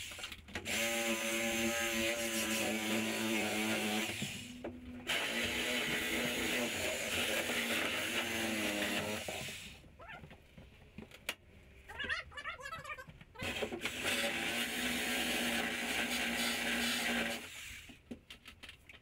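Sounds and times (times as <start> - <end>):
power tool motor running: 0.6 - 9.7, 13.4 - 17.9.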